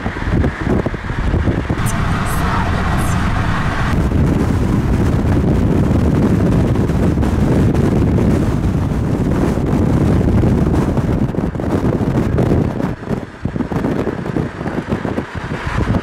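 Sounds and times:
wind buffeting microphone: 0:00.0 - 0:16.0
car driving rumble: 0:01.6 - 0:09.2.

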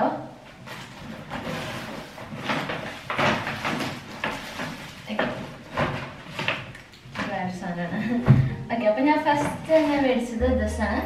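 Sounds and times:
items knocking and crackling: 0:00.6 - 0:07.6.

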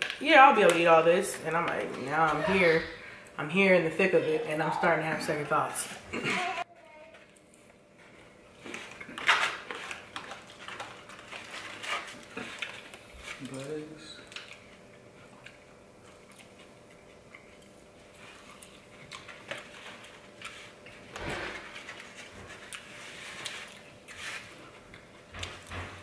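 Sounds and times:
soft chewing: 0:10.2 - 0:21.1, 0:21.9 - 0:25.6.

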